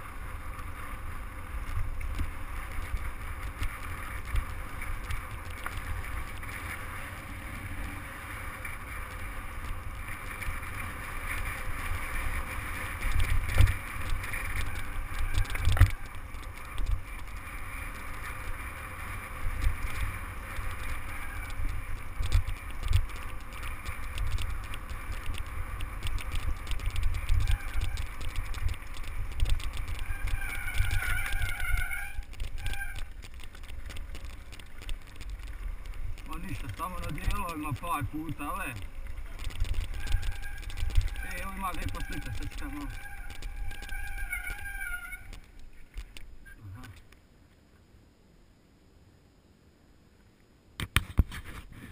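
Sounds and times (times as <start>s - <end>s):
tyres crunching on gravel: 0.0s - 46.4s
wind rumble on microphone: 0.0s - 47.0s
bike rattling over stones: 0.0s - 47.1s
wavering squeal: 27.2s - 28.4s, 29.8s - 33.2s, 39.2s - 45.5s.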